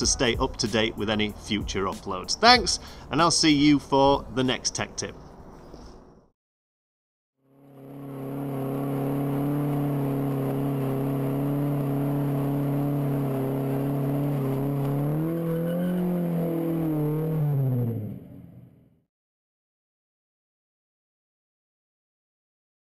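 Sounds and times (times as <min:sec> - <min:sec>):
car engine at high revs: 0:07.5 - 0:18.8
wheels spinning: 0:07.6 - 0:17.0.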